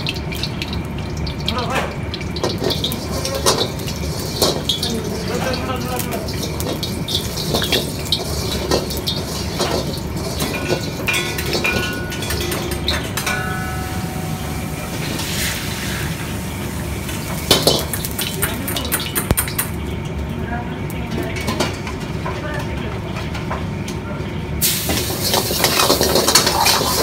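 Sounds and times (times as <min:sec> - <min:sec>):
water swishing in a pan: 0:00.0 - 0:19.0, 0:24.6 - 0:27.0
wok clanking and scraping: 0:02.4 - 0:19.8, 0:24.6 - 0:27.0.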